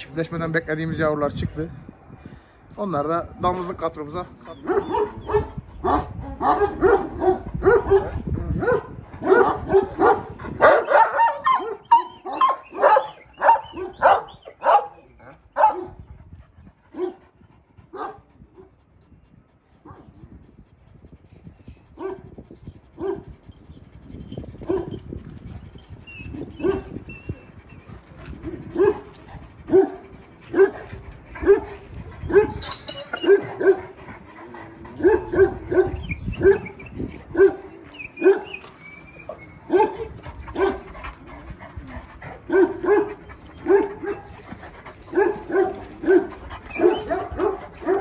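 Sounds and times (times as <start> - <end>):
large dogs barking: 4.6 - 16.1, 16.9 - 18.8, 22.0 - 22.3, 23.0 - 23.3, 26.4 - 27.1, 28.3 - 48.0.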